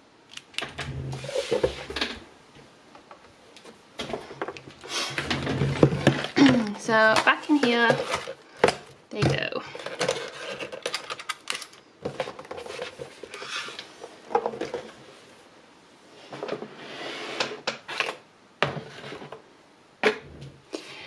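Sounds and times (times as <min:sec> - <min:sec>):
rubbing and scraping: 0:12.2 - 0:15.0.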